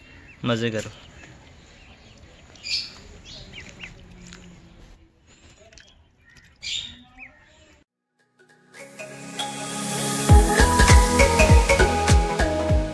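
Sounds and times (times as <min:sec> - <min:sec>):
ducklings peeping: 0:01.0 - 0:04.8.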